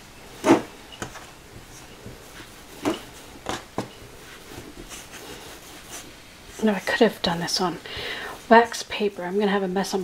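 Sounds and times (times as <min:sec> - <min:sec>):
dough rolling on tabletop: 0:00.3 - 0:07.6.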